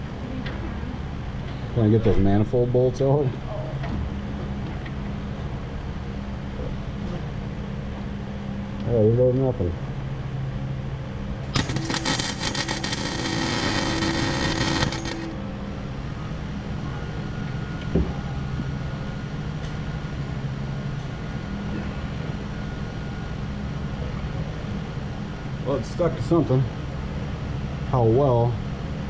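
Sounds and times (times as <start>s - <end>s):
steady low hum: 0.0s - 29.0s
welder arc crackling and sizzling: 11.5s - 15.4s.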